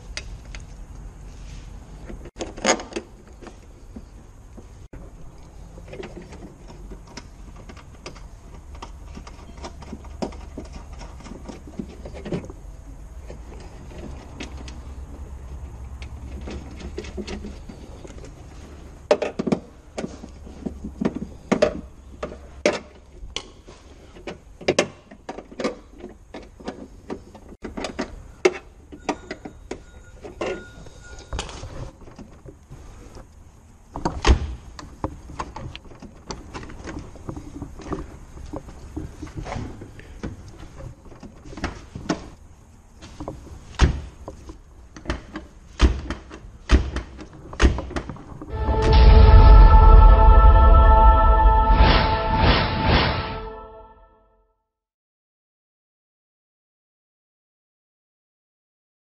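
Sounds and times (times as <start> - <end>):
low steady rumble: 48.5 - 52.6
heavy thump: 48.5 - 52.8.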